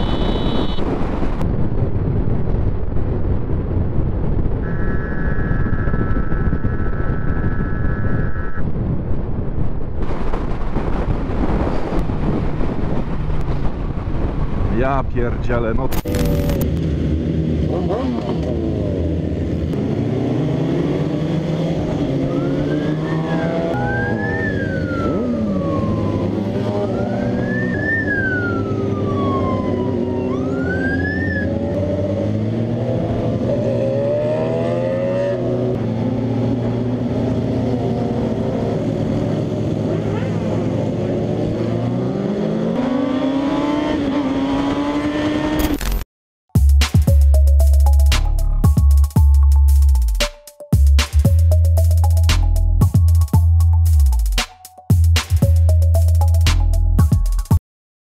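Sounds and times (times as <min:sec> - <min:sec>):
siren wailing: 0:04.6 - 0:08.7, 0:22.1 - 0:31.9
vehicle engine revving: 0:16.0 - 0:27.8, 0:30.8 - 0:45.7.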